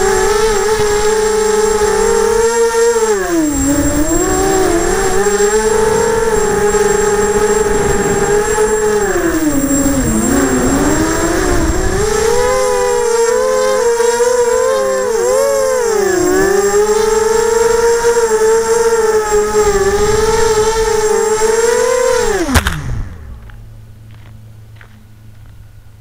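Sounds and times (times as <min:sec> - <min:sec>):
wind rumble on microphone: 0:00.0 - 0:14.5, 0:15.8 - 0:23.8
quadcopter motors whining: 0:00.0 - 0:25.5.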